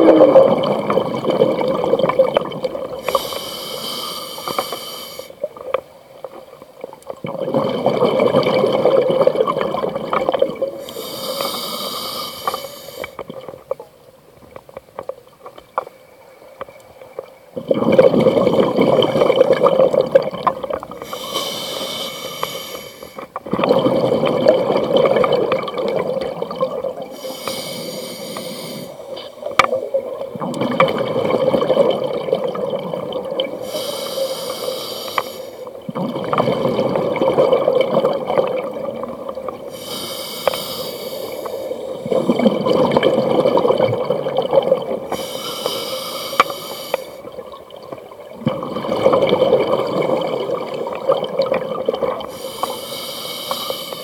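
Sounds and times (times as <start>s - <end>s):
exhaled air bubbling: 0.0s - 15.6s, 16.6s - 54.0s
diver inhaling through regulator: 3.0s - 5.4s, 10.8s - 13.2s, 21.0s - 23.3s, 27.1s - 29.2s, 33.6s - 35.7s, 39.7s - 42.5s, 45.1s - 47.2s, 52.3s - 54.0s.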